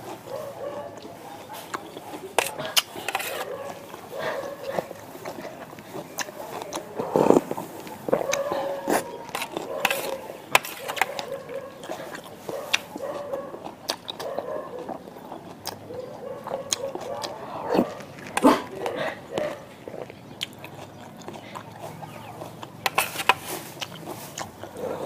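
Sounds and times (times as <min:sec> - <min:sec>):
slurping broth: 0:01.0 - 0:12.9, 0:17.7 - 0:25.0
metal spoon scraping a metal tray: 0:02.4 - 0:03.5, 0:22.8 - 0:23.7.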